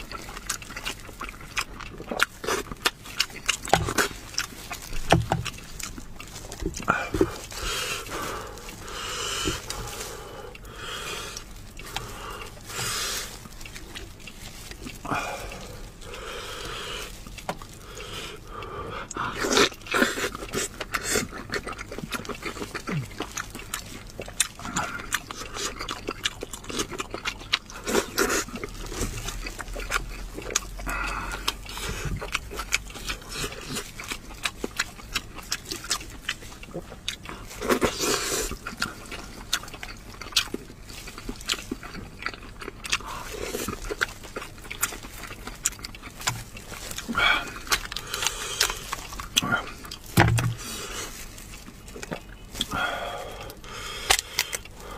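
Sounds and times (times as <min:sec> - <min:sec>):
meat being torn: 0:00.0 - 0:18.5, 0:19.1 - 0:52.8, 0:53.4 - 0:54.9
wet chewing and lip smacks: 0:00.0 - 0:54.9.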